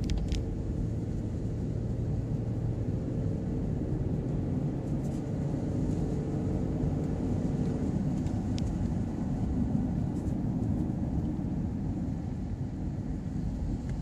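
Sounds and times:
car engine and tyre rumble: 0.0s - 14.0s.

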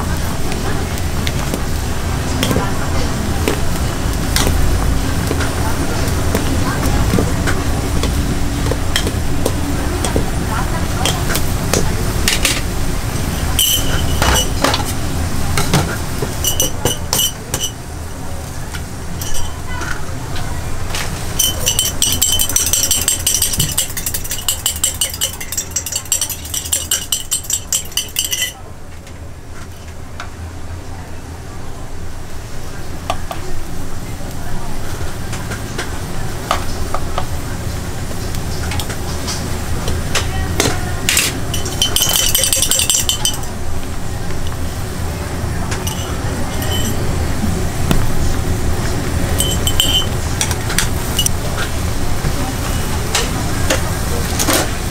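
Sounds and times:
broth boiling hard in a pot: 0.0s - 54.9s
glass jar and utensils clinking: 13.4s - 14.9s, 16.4s - 17.8s, 19.2s - 19.6s, 21.4s - 28.6s, 41.1s - 43.6s, 45.8s - 47.2s, 49.3s - 50.2s.

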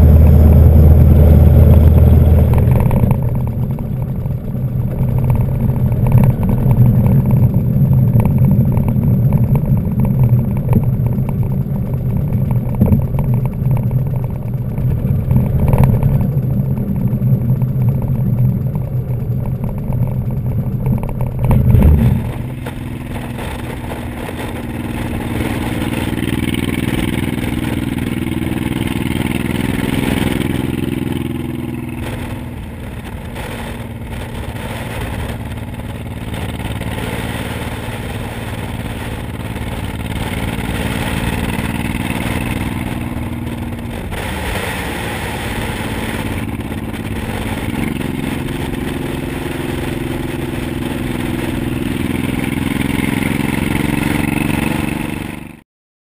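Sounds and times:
motorcycle engine rumble: 0.0s - 55.6s
wind rushing over microphone: 21.4s - 55.6s.

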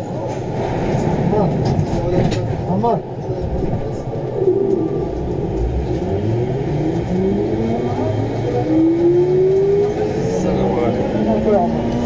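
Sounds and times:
train running rumble: 0.0s - 12.0s
metro train motor whine rising: 3.9s - 12.0s.

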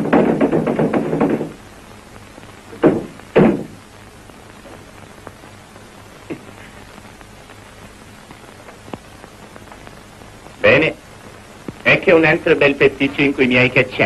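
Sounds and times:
loud thumps: 0.0s - 1.7s, 2.7s - 3.9s
old film soundtrack hiss: 0.0s - 14.0s
faint knock: 2.8s - 3.8s.

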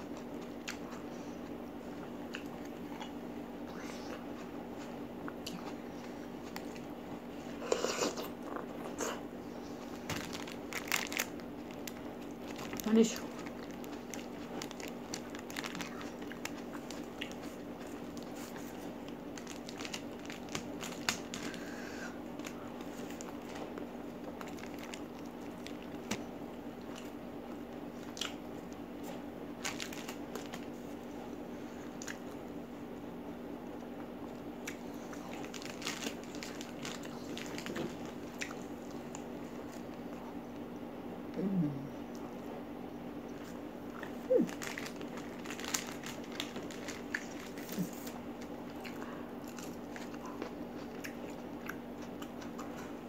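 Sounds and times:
steady low hum: 0.0s - 53.0s
chewing and biting food: 4.1s - 9.2s, 9.9s - 31.0s, 33.9s - 40.3s, 43.3s - 53.0s
paper liner crinkling: 9.8s - 26.3s, 29.0s - 31.1s, 35.0s - 40.1s, 43.5s - 48.8s.

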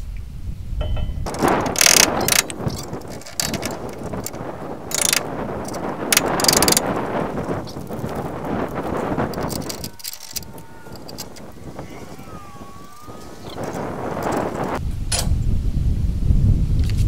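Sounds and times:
steel pieces clinking and scraping: 1.2s - 11.5s.

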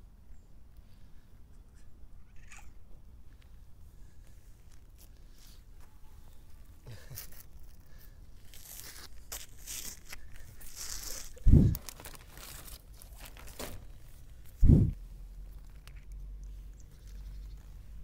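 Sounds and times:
plastic pouch tearing and crinkling: 6.9s - 14.6s.

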